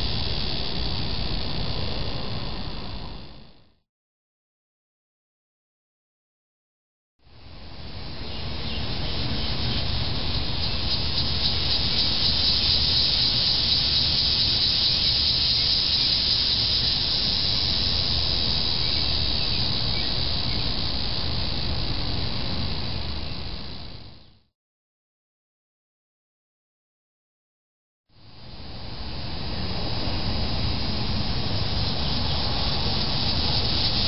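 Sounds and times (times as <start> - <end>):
cicada buzzing: 0.0 - 3.6, 7.4 - 24.4, 28.2 - 34.0.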